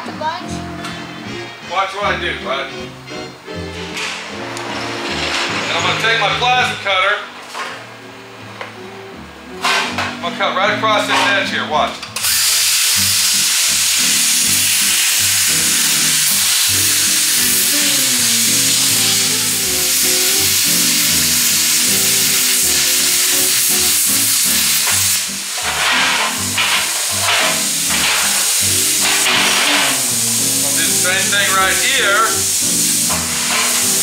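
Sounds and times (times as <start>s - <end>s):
background music: 0.0s - 34.0s
plasma cutter hissing: 12.2s - 34.0s.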